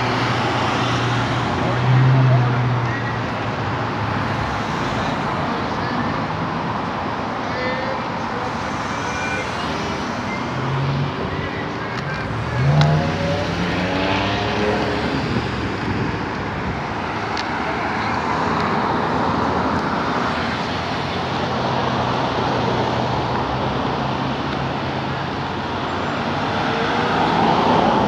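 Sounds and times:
road traffic passing: 0:00.0 - 0:28.0
vehicle engine accelerating: 0:12.1 - 0:16.2.

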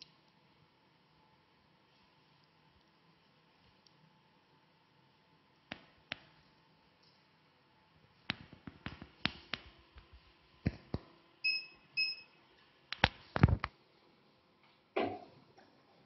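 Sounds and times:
short electronic beeps: 0:11.4 - 0:12.3.

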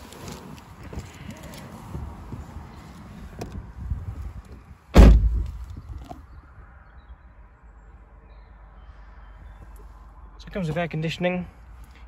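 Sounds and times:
shuffling and rustling in seat: 0:00.0 - 0:04.7
outside background noise: 0:00.0 - 0:12.0
car door thud: 0:04.9 - 0:05.6.

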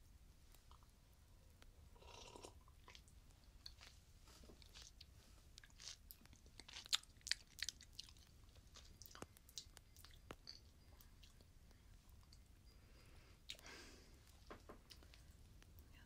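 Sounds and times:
soft rustle: 0:03.3 - 0:05.8.

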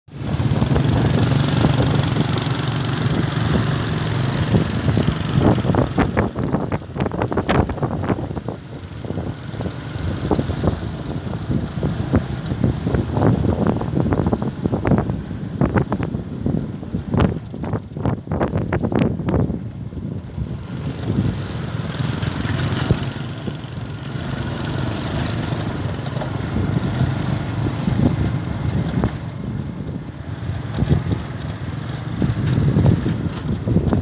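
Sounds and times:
motorcycle engine running: 0:00.1 - 0:16.2, 0:16.9 - 0:34.0.

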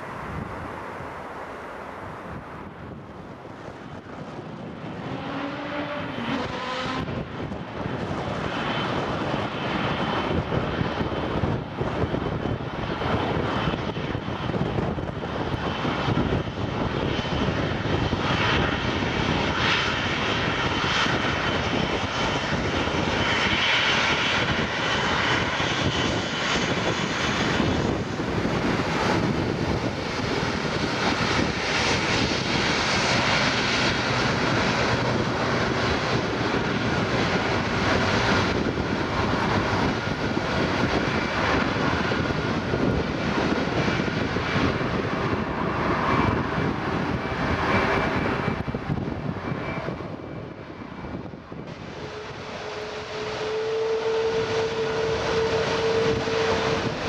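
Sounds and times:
jet engines rumbling and whining: 0:00.0 - 0:57.0.

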